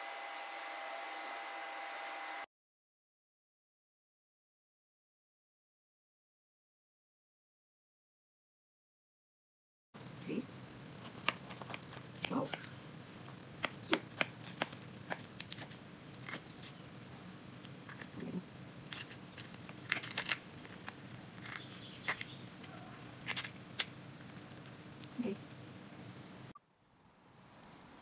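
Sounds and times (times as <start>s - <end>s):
pastry crust crackling: 10.0s - 26.1s.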